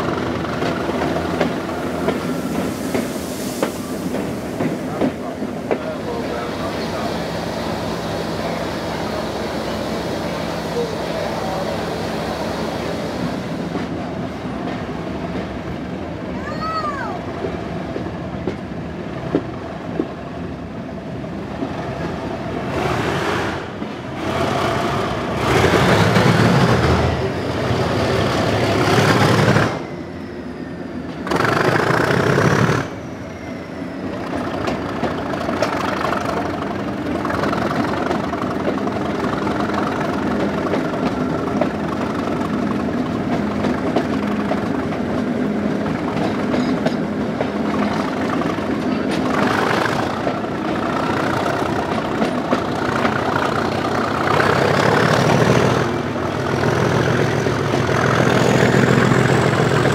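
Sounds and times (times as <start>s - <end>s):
diesel locomotive engine drone: 0.0s - 59.9s
faint rising whistle: 29.8s - 31.1s, 33.0s - 34.4s.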